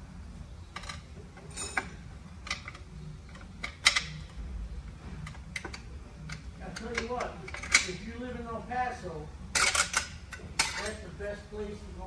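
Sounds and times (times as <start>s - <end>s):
steady low hum: 0.0s - 12.0s
metal parts clicking and clinking: 0.7s - 4.4s, 5.2s - 8.0s, 9.5s - 11.1s.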